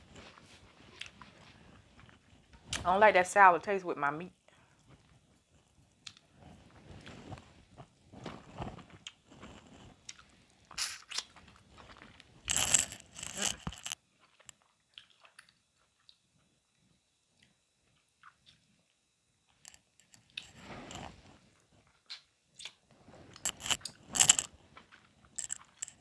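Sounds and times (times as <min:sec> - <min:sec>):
person chewing: 0:07.8 - 0:16.2, 0:21.8 - 0:26.0
crab shell crackling: 0:12.0 - 0:14.0, 0:23.3 - 0:26.0.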